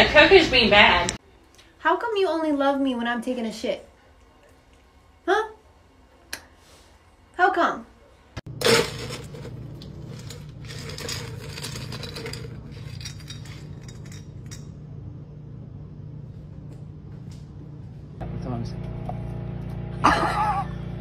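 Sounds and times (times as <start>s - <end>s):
steady low hum: 8.0s - 21.0s
ice cubes clattering and clinking: 8.5s - 14.6s.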